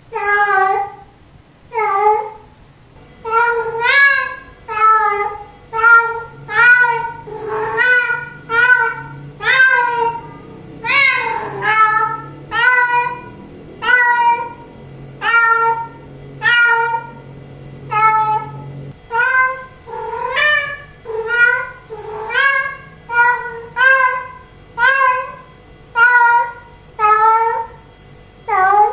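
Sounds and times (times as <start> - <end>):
cat meowing loudly: 3.3 - 14.6.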